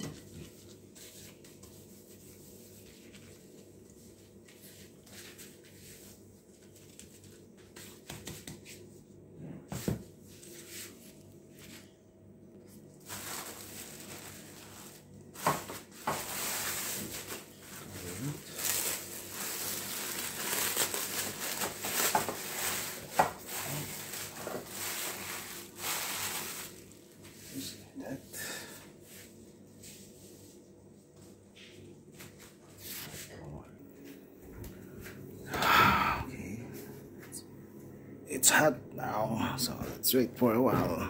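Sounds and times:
cling film crinkling: 0:13.0 - 0:27.3.

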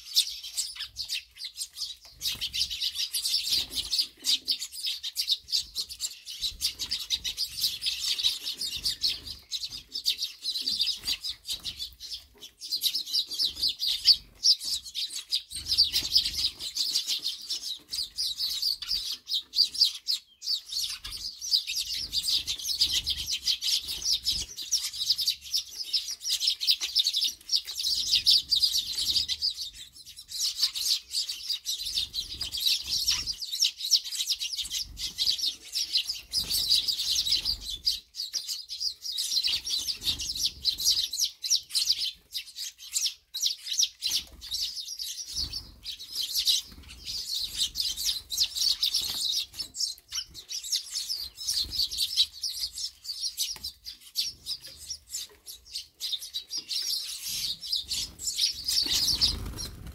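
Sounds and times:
sparrows chirping: 0:00.0 - 0:59.9
wing flutters: 0:58.8 - 0:59.9.

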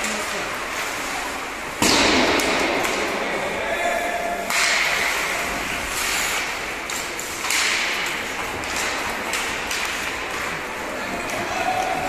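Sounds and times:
hockey sticks and puck clacking: 0:00.0 - 0:12.0
skate blades scraping ice: 0:04.8 - 0:12.0.

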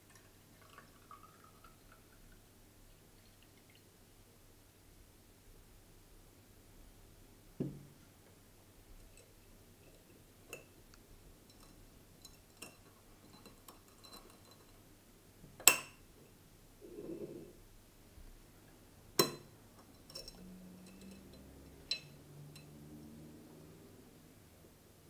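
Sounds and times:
dull knock: 0:07.6 - 0:07.9.

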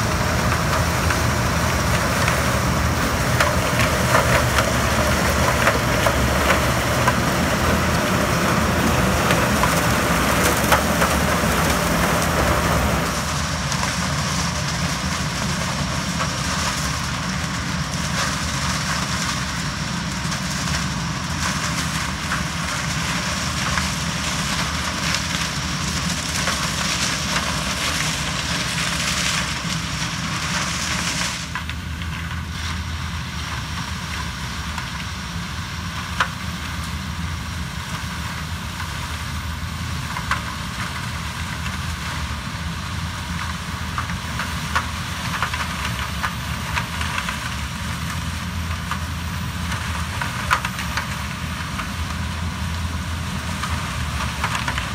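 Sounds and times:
crackle of cane being chopped: 0:00.0 - 0:54.9
harvester engine drone: 0:00.0 - 0:54.9.

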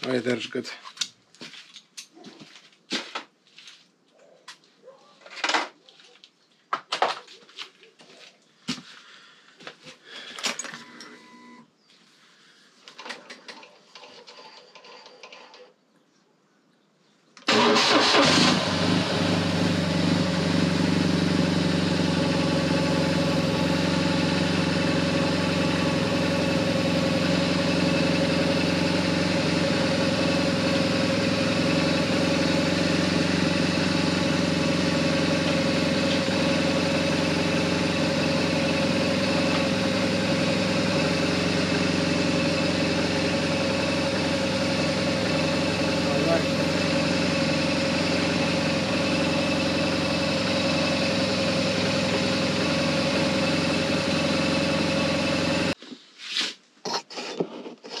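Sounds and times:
motorcycle engine idling: 0:18.2 - 0:55.8.

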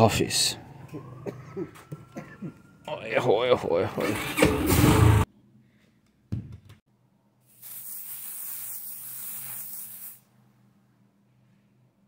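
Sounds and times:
aerosol spray hissing: 0:07.5 - 0:10.3.

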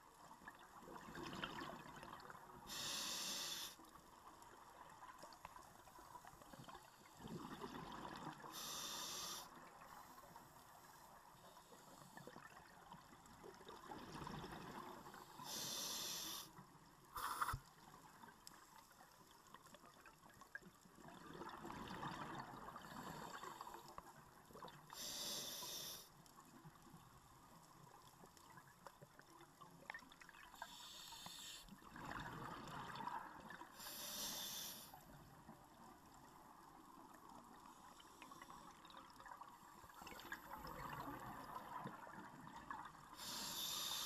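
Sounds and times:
hissing regulator inhale: 0:02.7 - 0:03.8, 0:08.5 - 0:10.3, 0:15.3 - 0:16.5, 0:17.2 - 0:17.6, 0:25.0 - 0:26.1, 0:30.6 - 0:31.7, 0:33.8 - 0:35.0, 0:43.2 - 0:44.0.

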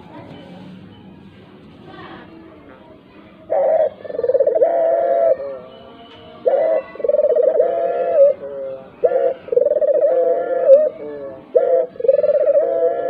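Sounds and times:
dove cooing: 0:03.4 - 0:05.8, 0:06.4 - 0:13.0.

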